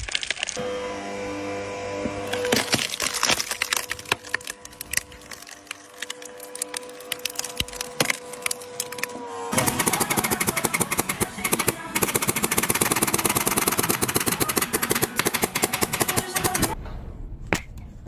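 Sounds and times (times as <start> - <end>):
wood crackling and splitting: 0.0 - 0.6, 2.2 - 16.8
pneumatic staple gun firing: 9.5 - 16.8.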